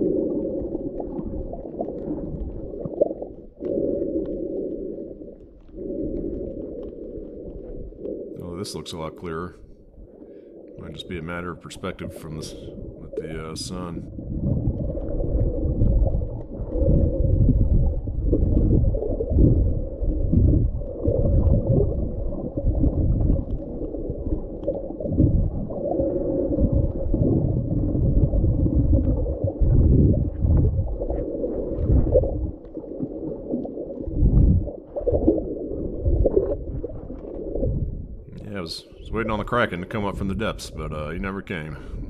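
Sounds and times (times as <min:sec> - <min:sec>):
underwater water rushing: 0:00.0 - 0:41.7.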